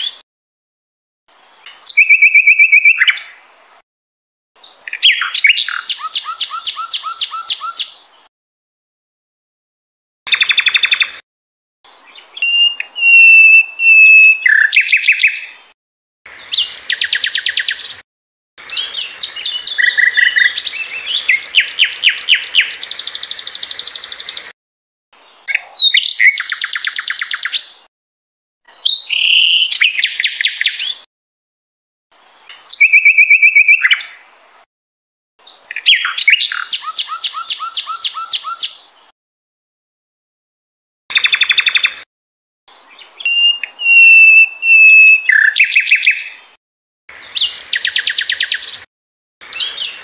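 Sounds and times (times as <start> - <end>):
songbird singing trills: 1.6 - 3.4, 4.6 - 8.1, 10.3 - 11.2, 11.9 - 15.7, 16.3 - 18.0, 18.6 - 24.5, 25.4 - 27.8, 28.7 - 31.1, 32.5 - 34.2, 35.4 - 39.0, 42.7 - 46.5, 47.2 - 50.0.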